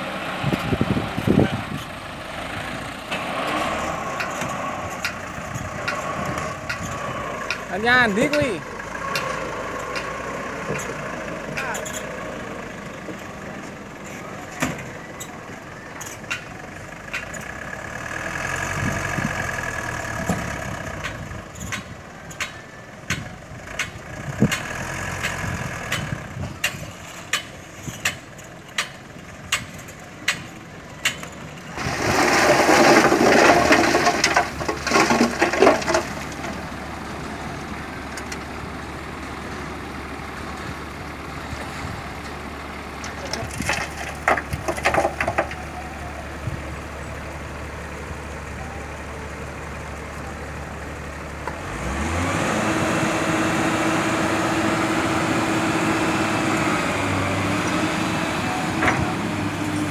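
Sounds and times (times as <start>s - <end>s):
dump truck diesel engine: 0.0s - 59.9s.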